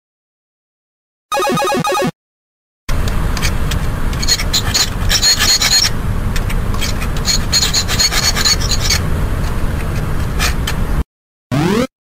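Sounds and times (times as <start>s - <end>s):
high-pitched squeaky scrapes: 4.2s - 6.0s, 6.7s - 9.0s
scraping on a plate: 6.8s - 10.6s.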